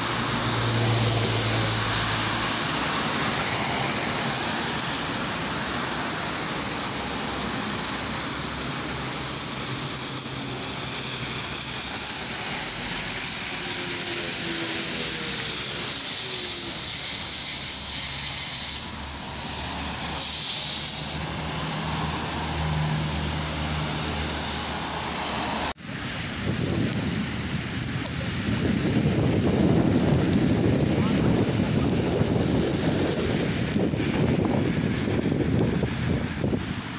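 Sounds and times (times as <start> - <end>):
street traffic: 0.0 - 36.9
trolleybus whine and hum: 0.0 - 36.9
compressed air hiss: 8.0 - 21.4
wind rumble on microphone: 25.9 - 36.9.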